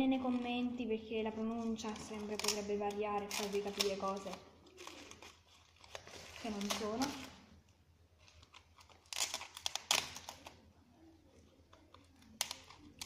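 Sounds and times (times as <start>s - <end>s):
paper rustling and crinkling: 0.0s - 13.0s.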